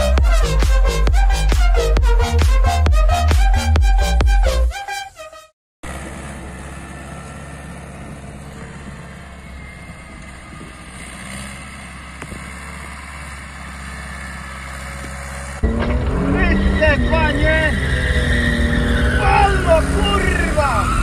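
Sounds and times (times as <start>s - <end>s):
music track: 0.0s - 5.5s
tractor diesel engine under load: 5.8s - 21.0s.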